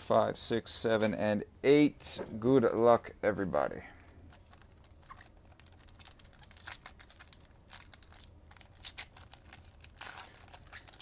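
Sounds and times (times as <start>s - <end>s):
foil wrapper crinkling and tearing: 4.0s - 11.0s.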